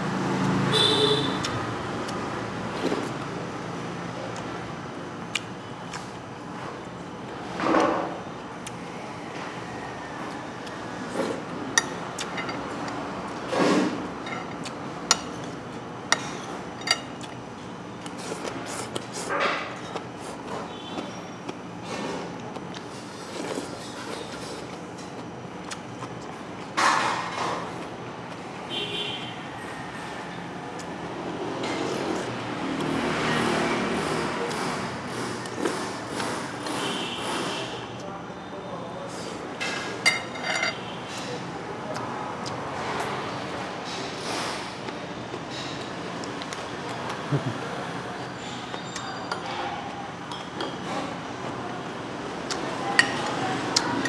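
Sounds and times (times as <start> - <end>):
road traffic noise: 0.0 - 54.0
steady background hum: 0.0 - 54.0
spoon and dishes clinking: 11.8 - 12.7, 14.2 - 15.4, 16.1 - 17.2, 39.7 - 40.8.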